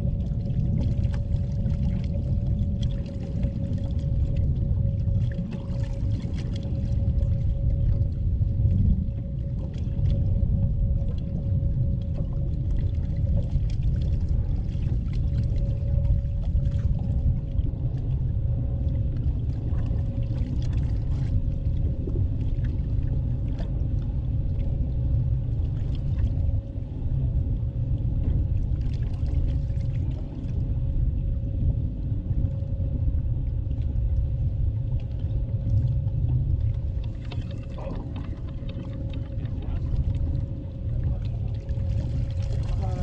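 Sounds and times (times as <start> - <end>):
faint steady whine: 0.0 - 43.0
water lapping at boat hull: 0.0 - 43.0
wind buffeting microphone: 37.6 - 43.0.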